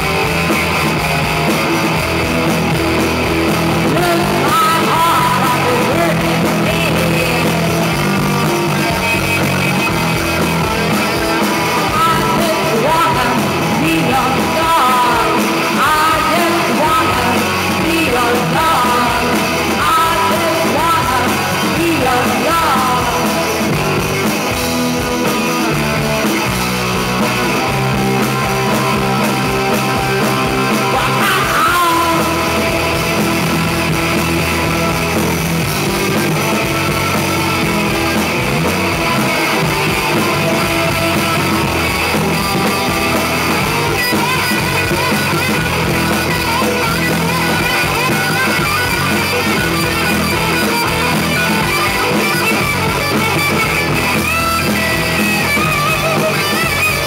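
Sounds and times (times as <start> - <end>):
rock band playing: 0.0 - 57.0
person singing: 3.5 - 23.8, 28.2 - 33.6.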